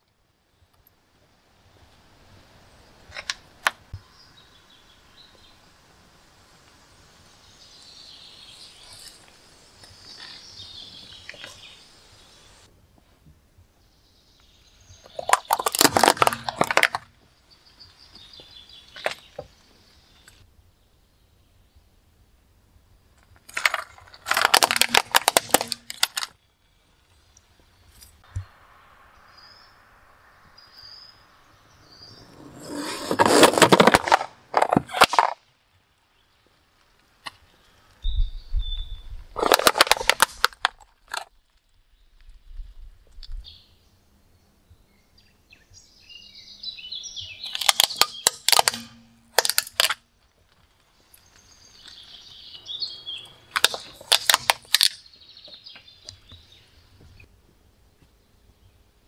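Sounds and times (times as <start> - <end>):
tyre crushing soap gritty crackling: 15.2 - 17.2, 23.4 - 26.4, 32.4 - 35.4, 39.4 - 41.6, 47.4 - 52.4, 53.5 - 55.6.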